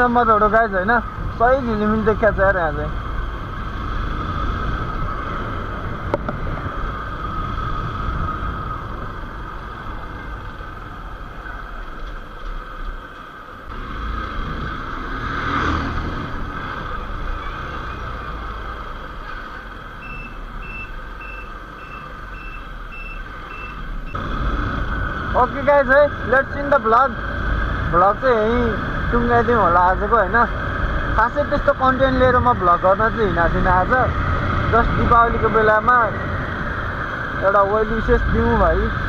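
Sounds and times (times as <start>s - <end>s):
motorcycle engine: 0.0s - 39.0s
vehicle passing: 13.7s - 20.6s
high electronic beeping: 20.0s - 24.2s.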